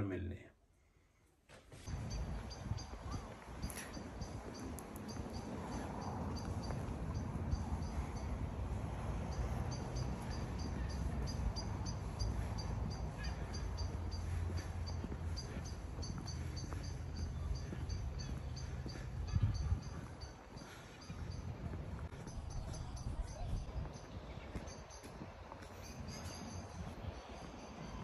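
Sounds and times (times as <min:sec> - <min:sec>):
wind on microphone: 0:01.9 - 0:13.4, 0:19.0 - 0:20.3, 0:21.1 - 0:28.0.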